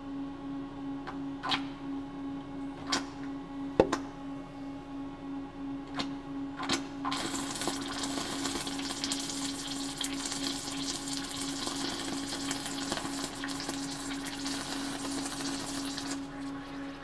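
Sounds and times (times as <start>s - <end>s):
welding arc crackling: 7.1s - 16.4s.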